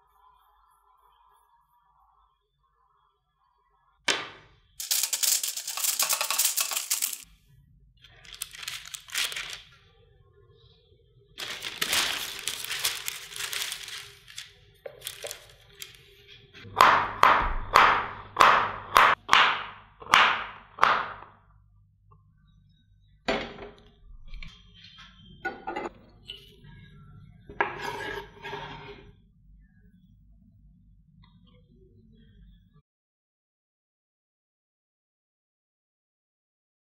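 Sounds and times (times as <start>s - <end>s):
plastic sheet crinkling: 4.8s - 7.2s, 8.1s - 9.8s, 11.4s - 16.3s.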